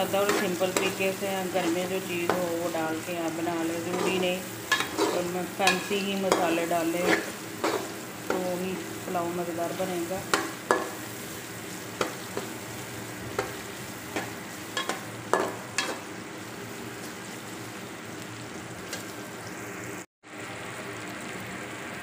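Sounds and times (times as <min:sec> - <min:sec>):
masala sizzling in oil: 0:00.0 - 0:22.0
metal spatula scraping a pot: 0:00.1 - 0:01.0, 0:03.7 - 0:08.4.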